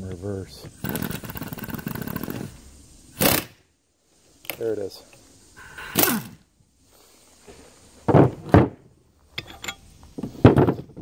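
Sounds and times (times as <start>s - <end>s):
impact wrench whirring: 0.8s - 2.5s, 3.1s - 3.6s.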